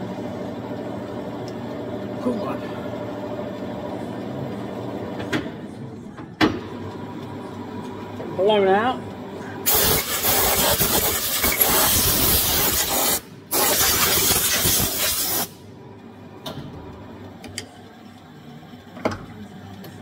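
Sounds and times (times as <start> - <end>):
compressed air hissing: 9.7 - 15.6.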